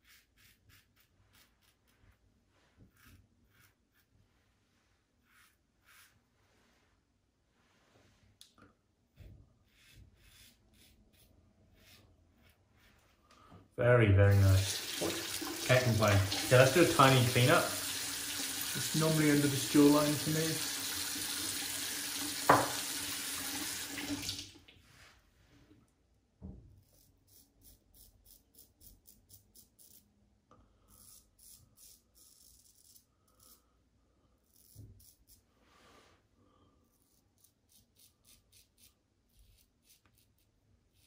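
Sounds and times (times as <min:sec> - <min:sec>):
razor scraping stubble: 0:00.0 - 0:02.0, 0:02.9 - 0:04.1, 0:09.7 - 0:13.1, 0:34.4 - 0:35.5, 0:36.9 - 0:41.0
tap running into sink: 0:14.8 - 0:16.5, 0:22.2 - 0:24.4.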